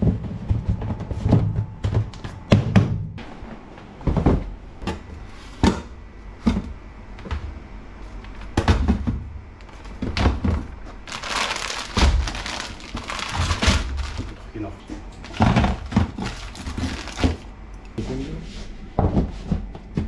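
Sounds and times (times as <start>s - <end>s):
rustling crinkling noise: 10.8s - 18.0s.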